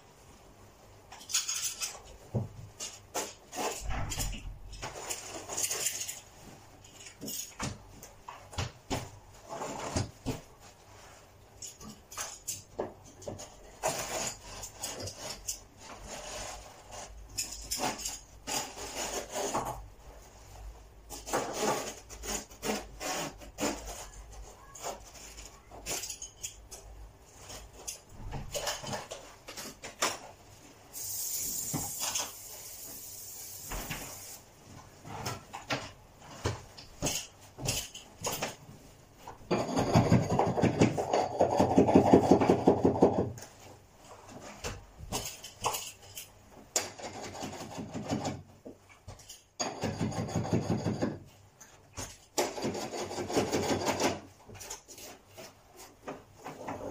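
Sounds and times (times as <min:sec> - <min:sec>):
steady hiss: 0:30.8 - 0:34.6
tools knocking and tapping: 0:39.4 - 0:43.6, 0:44.6 - 0:51.3.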